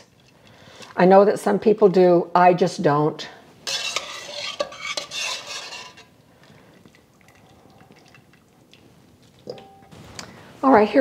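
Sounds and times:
wire skimmer scraping metal pot: 3.6s - 6.1s.

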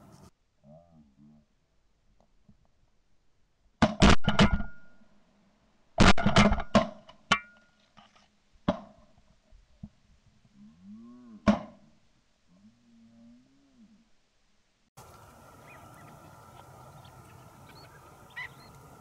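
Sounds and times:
ducks quacking: 15.0s - 19.0s.

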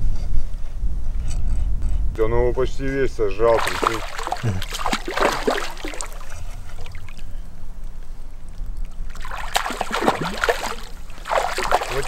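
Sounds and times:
fish splashing at water surface: 3.5s - 7.4s, 8.9s - 12.0s.

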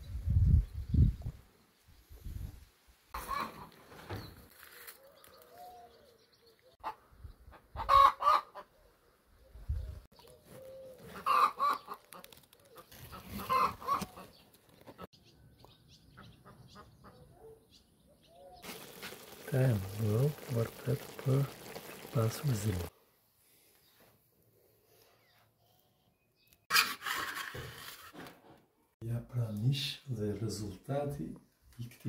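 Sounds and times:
chickens clucking and calling: 3.2s - 3.8s, 6.8s - 8.8s, 10.9s - 12.2s, 13.0s - 14.3s.

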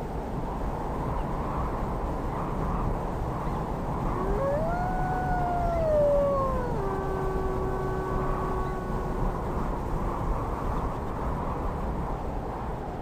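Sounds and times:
wolf howling: 4.1s - 9.9s.

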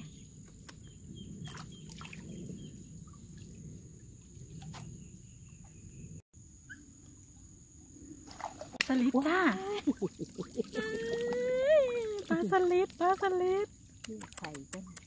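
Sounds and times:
water splashing and dripping: 1.4s - 4.9s, 8.2s - 15.0s.

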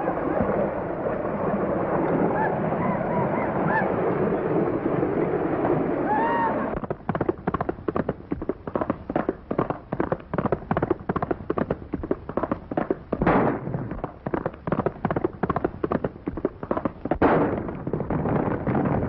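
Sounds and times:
galloping horse hoofbeats: 5.6s - 19.0s
gunshots: 13.2s - 14.2s, 16.8s - 19.0s.

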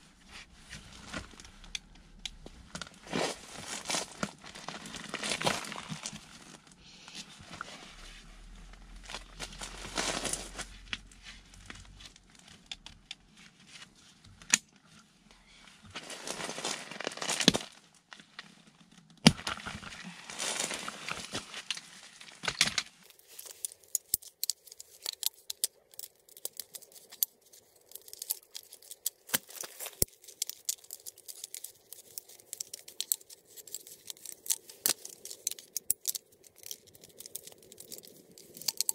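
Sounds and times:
crinkling and rustling: 0.0s - 38.9s
metal poles clicking and knocking: 23.1s - 38.9s
small ticks: 30.0s - 38.9s.

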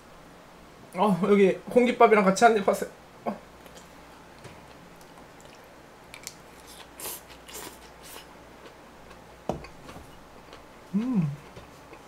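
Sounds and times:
person eating with wet smacks: 3.6s - 12.0s.

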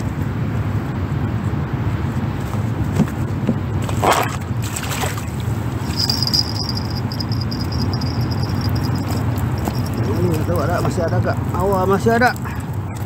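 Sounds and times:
low outdoor rumble: 0.0s - 13.0s
water sloshing: 4.0s - 10.1s
high rapidly pulsing chirp: 5.8s - 11.4s.

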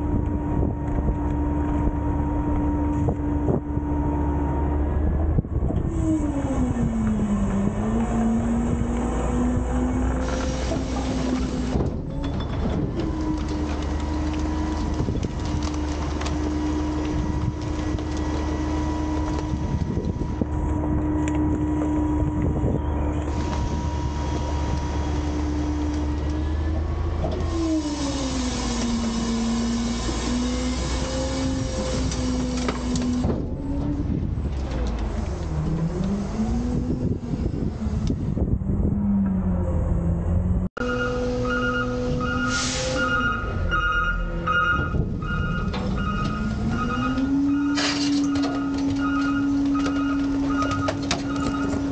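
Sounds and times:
garbage truck engine running: 0.0s - 51.9s.

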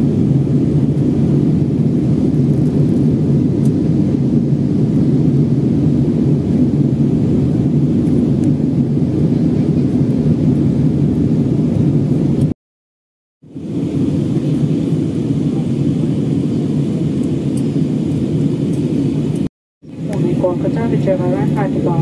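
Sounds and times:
jet engines roaring in cabin: 0.0s - 12.6s, 13.4s - 22.0s.

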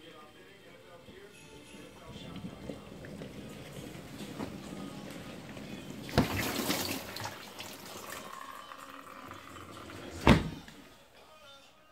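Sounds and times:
rushing water-like noise: 3.7s - 10.2s
dishwasher door thud shut: 10.1s - 10.7s.

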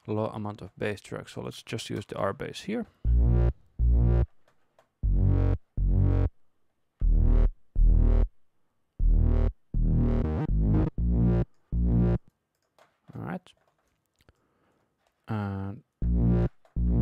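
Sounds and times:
synth bass line: 3.1s - 4.3s, 5.0s - 6.3s, 7.0s - 8.3s, 9.0s - 12.2s, 16.0s - 17.0s.

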